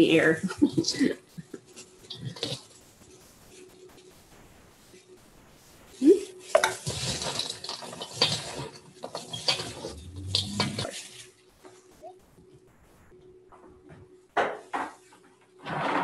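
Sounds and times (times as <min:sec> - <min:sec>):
popcorn rustling in metal bowl: 0:00.0 - 0:04.0, 0:05.9 - 0:11.9.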